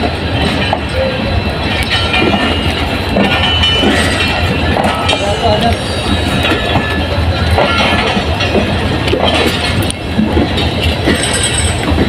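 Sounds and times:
train wheels rumbling on rail: 0.0 - 12.0
wheels knocking over rail joints: 1.7 - 12.0.

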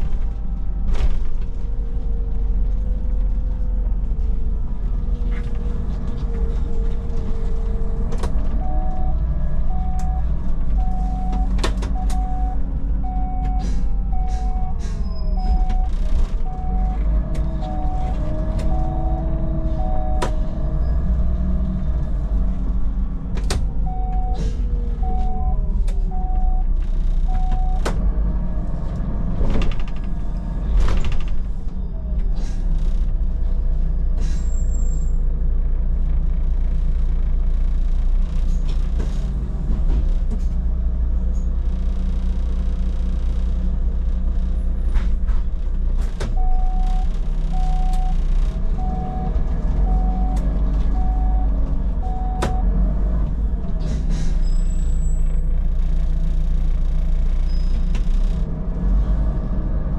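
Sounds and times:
bus engine running: 0.0 - 59.9
door warning beeps: 8.6 - 20.4, 23.8 - 26.7, 27.3 - 27.8, 46.3 - 52.7
door and air brake hisses: 13.5 - 15.6, 24.2 - 24.7, 34.2 - 34.8, 53.8 - 54.9.

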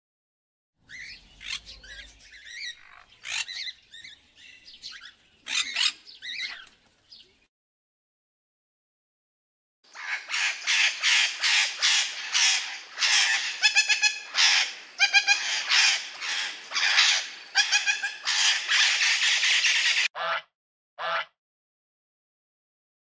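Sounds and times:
bird giving raspy calls: 0.9 - 4.1, 4.9 - 6.6, 9.9 - 21.3.

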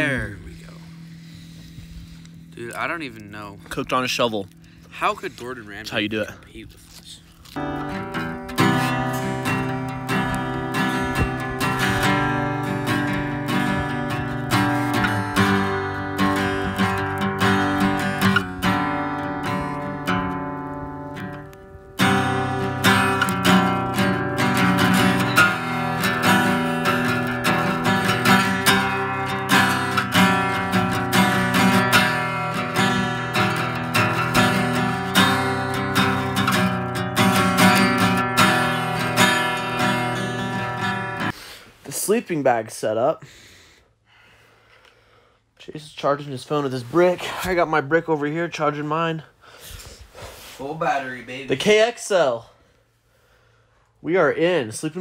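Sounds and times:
acoustic guitar strumming: 0.0 - 41.5.

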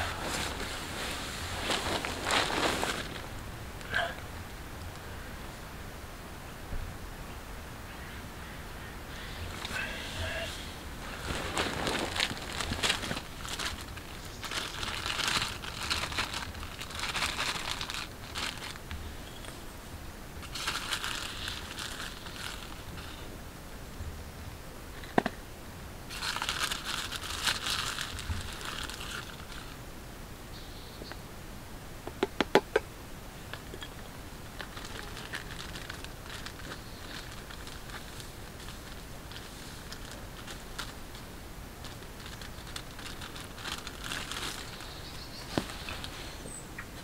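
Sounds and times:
plastic bag crinkling: 0.0 - 3.4, 9.5 - 19.0, 20.4 - 23.2, 26.1 - 29.8, 33.9 - 47.0.

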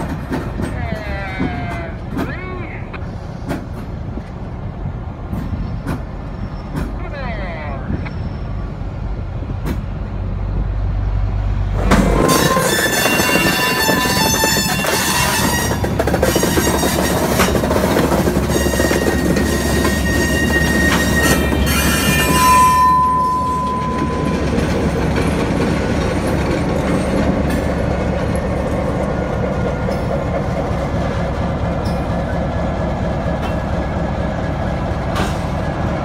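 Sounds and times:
freight train rumbling: 0.0 - 36.0
locomotive rumbling: 0.0 - 36.0
train wheels squealing: 7.9 - 8.6, 12.2 - 17.6, 18.3 - 25.6.

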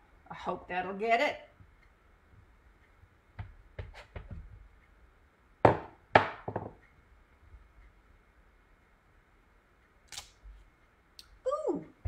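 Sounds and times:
stamp knocking on cardstock: 3.4 - 4.6, 5.6 - 6.7.

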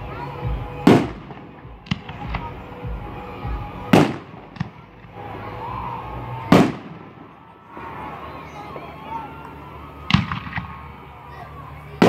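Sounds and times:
loud firework bangs: 0.5 - 5.2, 6.4 - 7.4, 10.1 - 10.8
small firework cracks: 0.7 - 5.3, 6.4 - 7.5, 8.8 - 11.0.

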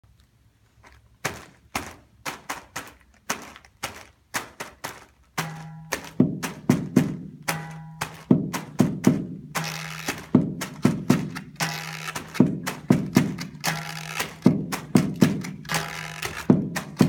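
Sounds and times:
sharp taps: 1.2 - 17.0
thuds on cardboard box: 5.4 - 9.4, 10.2 - 11.5, 12.2 - 13.7, 14.3 - 17.0.

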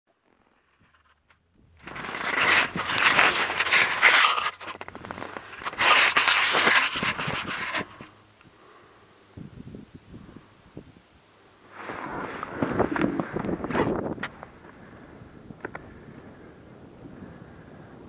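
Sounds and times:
scraping against microphone: 0.2 - 8.2, 11.7 - 14.8.

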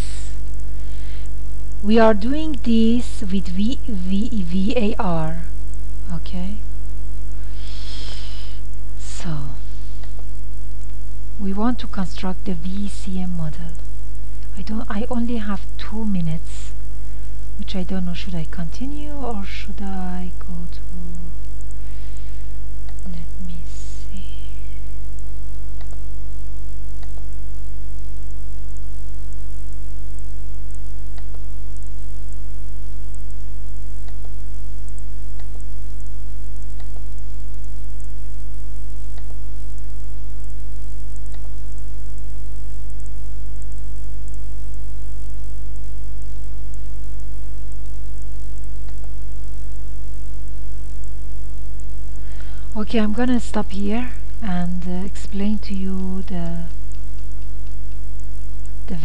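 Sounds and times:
electrical hum: 0.0 - 59.0
faint clicks: 31.1 - 31.4.

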